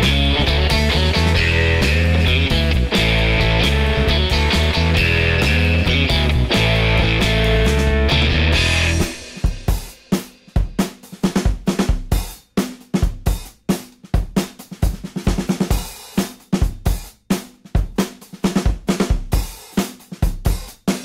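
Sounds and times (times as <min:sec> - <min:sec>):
rock band chord: 0:00.0 - 0:11.5
drum kit beat: 0:00.0 - 0:21.0.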